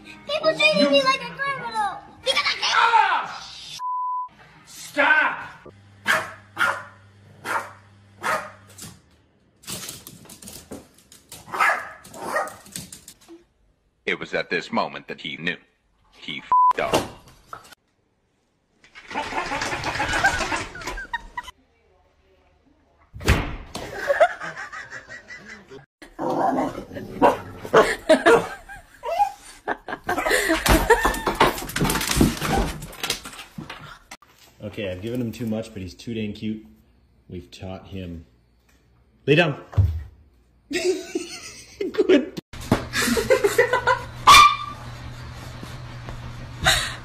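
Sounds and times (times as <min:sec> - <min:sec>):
dog barking: 0:06.0 - 0:08.7, 0:11.5 - 0:12.6, 0:27.2 - 0:28.5, 0:44.3 - 0:44.8
people laughing: 0:19.1 - 0:21.5, 0:23.8 - 0:25.9, 0:27.8 - 0:31.4, 0:40.7 - 0:44.2.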